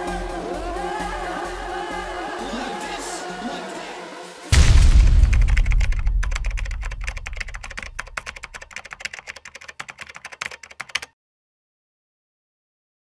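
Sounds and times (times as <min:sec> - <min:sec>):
deep boom: 0:04.5 - 0:07.2
keyboard typing clicks: 0:05.2 - 0:11.1.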